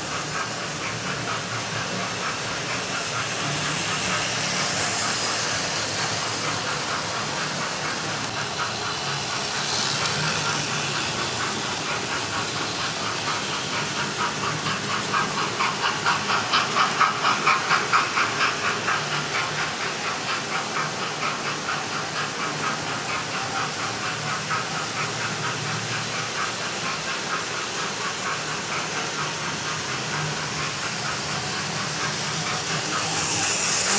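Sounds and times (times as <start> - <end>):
model train wheels and motors whirring: 0.0 - 33.9.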